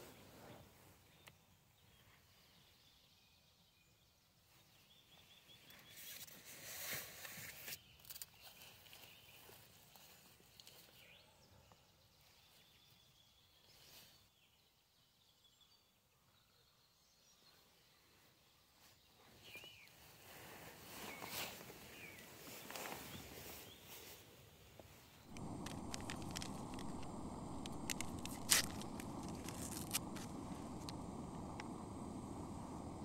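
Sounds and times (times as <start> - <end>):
wind rustling leaves: 20.2 - 33.0.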